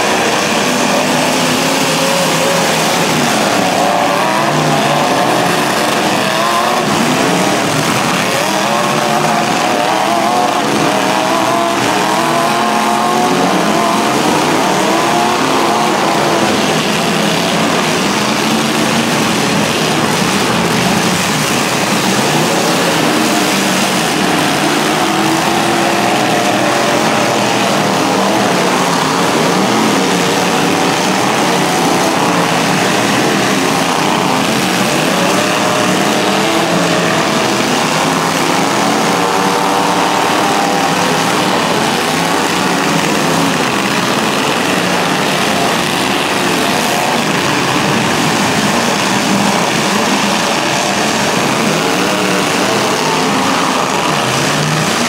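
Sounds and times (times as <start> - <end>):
truck engines revving: 0.0 - 55.0.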